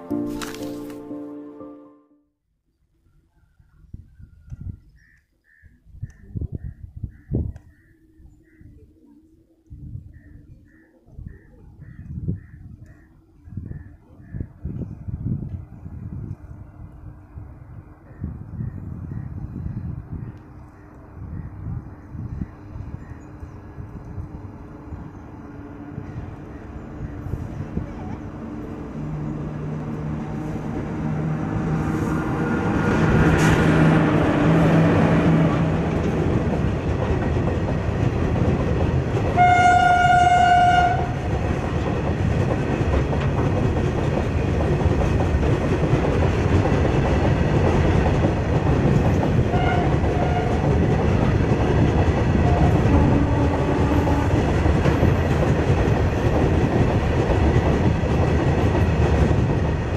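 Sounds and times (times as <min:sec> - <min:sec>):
electric locomotive humming: 0:12.1 - 0:59.9
train horn: 0:39.3 - 0:41.3, 0:49.5 - 0:50.7, 0:52.4 - 0:54.6.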